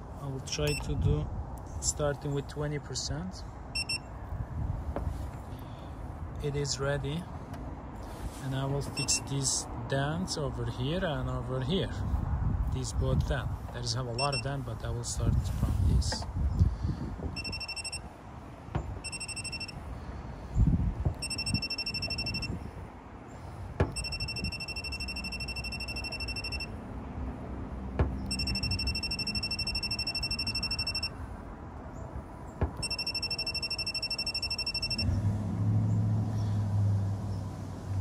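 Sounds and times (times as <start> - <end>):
rapid electronic beeping: 17.4 - 18.0, 19.0 - 19.7, 21.2 - 22.5, 24.0 - 26.7, 28.3 - 31.1, 32.8 - 35.0.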